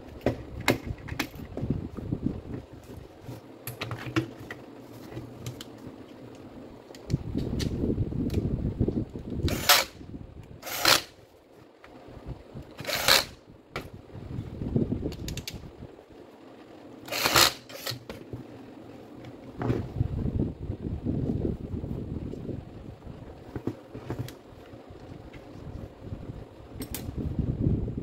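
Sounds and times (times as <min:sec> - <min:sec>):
drill knocking and rubbing: 0:09.4 - 0:10.0, 0:10.6 - 0:11.1, 0:12.8 - 0:13.4, 0:17.1 - 0:18.1
drill scraping against bench: 0:09.4 - 0:10.0, 0:10.6 - 0:11.2, 0:12.8 - 0:13.4, 0:17.0 - 0:18.0.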